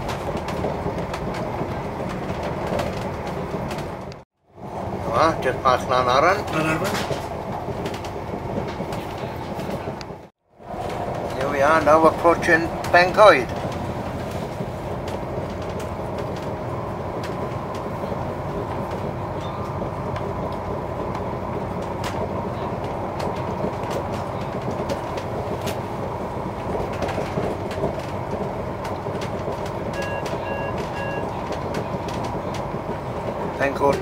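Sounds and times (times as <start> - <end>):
clicks over rail joints: 0.0 - 4.2, 5.9 - 34.0
train wheels rumbling on rail: 0.0 - 34.0
short beeps: 30.0 - 31.3.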